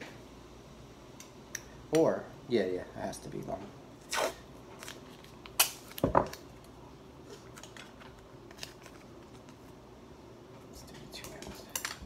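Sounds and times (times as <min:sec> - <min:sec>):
tape crackling: 0:04.0 - 0:09.8.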